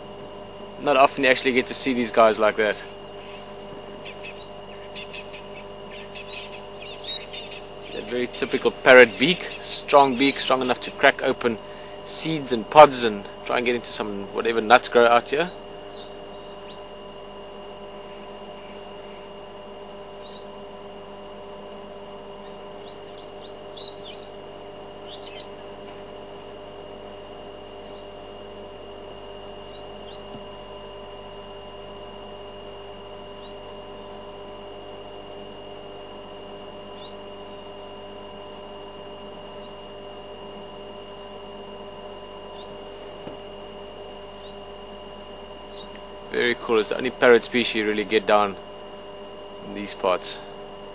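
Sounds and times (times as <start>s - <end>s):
steady background hum: 0.0s - 50.9s
parrot whistling: 4.0s - 8.0s, 25.1s - 25.6s.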